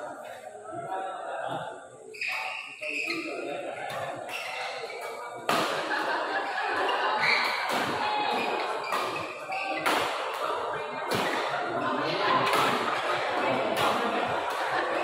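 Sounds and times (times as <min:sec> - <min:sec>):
rackets hitting shuttlecock: 0:05.5 - 0:06.1, 0:07.2 - 0:11.6, 0:12.4 - 0:13.1.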